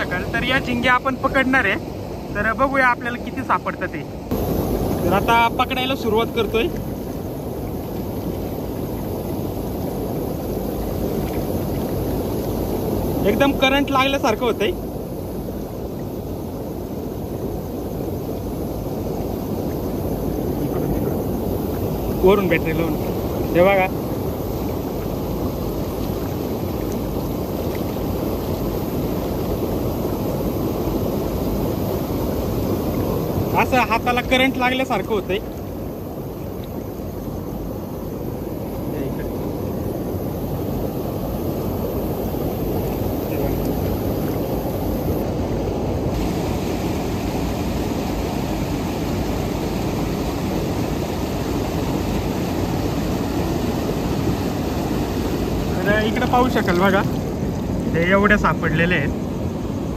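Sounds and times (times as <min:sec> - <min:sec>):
river water rushing over rocks: 0:00.0 - 0:14.8, 0:15.4 - 0:59.9
river rushing over rocks: 0:37.9 - 0:59.9.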